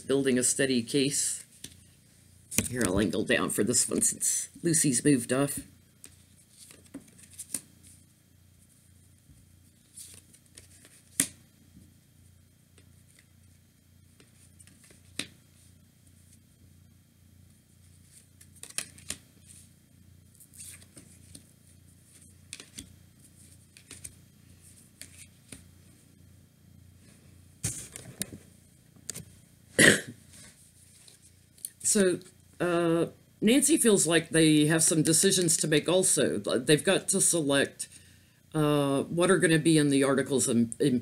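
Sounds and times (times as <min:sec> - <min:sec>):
card snaps: 0:11.1 - 0:11.4.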